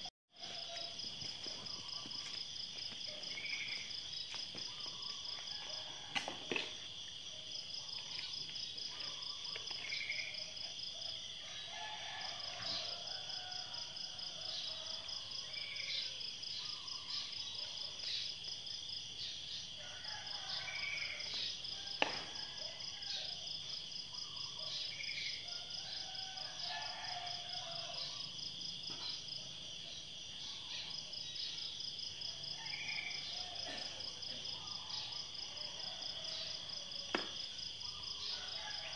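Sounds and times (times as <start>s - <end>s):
bird chirp: 15.6s - 18.3s.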